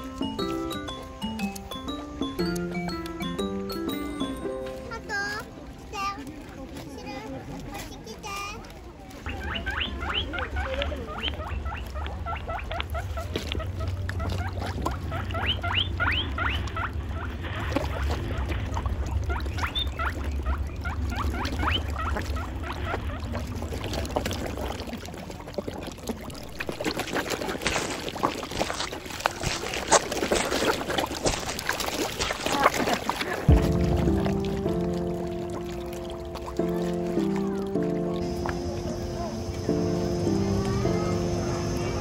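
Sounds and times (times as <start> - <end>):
fish splashing at water surface: 8.6 - 42.0
low rumble: 33.4 - 42.0.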